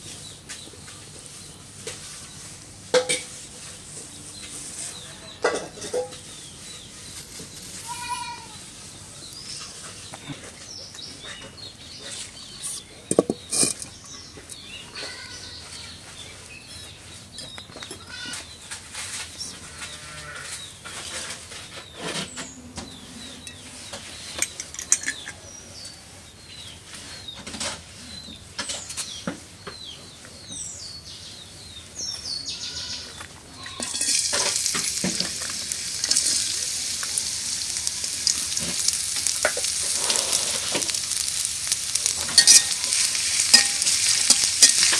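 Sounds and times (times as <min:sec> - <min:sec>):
sharp knocks and clatter: 0:13.1 - 0:14.0
farm animal calls: 0:32.2 - 0:34.2, 0:39.6 - 0:41.4
onions sizzling in hot oil: 0:33.7 - 0:44.9.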